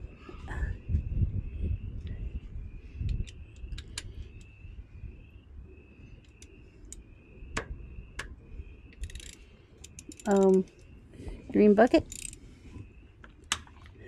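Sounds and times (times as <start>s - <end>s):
wind rumble on microphone: 0.0s - 14.0s
hand tools clicking and tapping: 8.9s - 10.8s.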